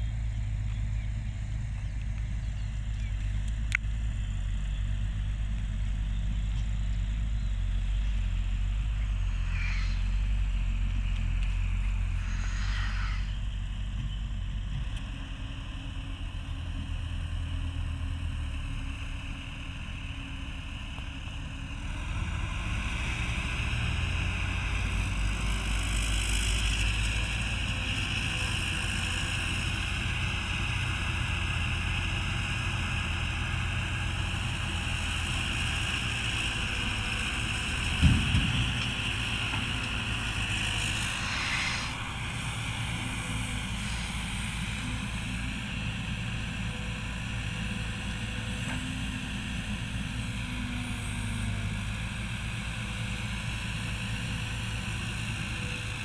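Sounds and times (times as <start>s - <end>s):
excavator engine rumbling: 0.0s - 56.0s
high whine: 8.8s - 13.7s, 38.6s - 46.3s
heavy thump: 38.0s - 38.9s.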